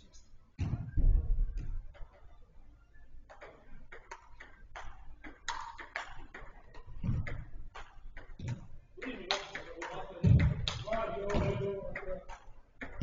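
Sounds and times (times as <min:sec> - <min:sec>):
football being kicked and bouncing: 0:00.6 - 0:01.8, 0:06.8 - 0:08.7, 0:10.2 - 0:11.7.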